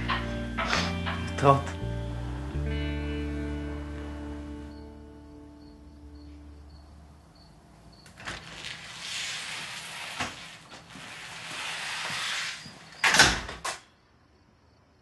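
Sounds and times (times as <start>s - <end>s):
door closing with loud clunk: 13.0s - 13.8s.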